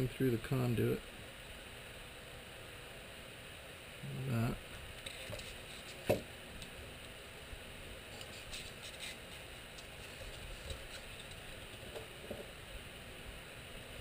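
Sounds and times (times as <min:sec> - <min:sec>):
soft rustles: 0:05.0 - 0:06.2, 0:08.1 - 0:12.5.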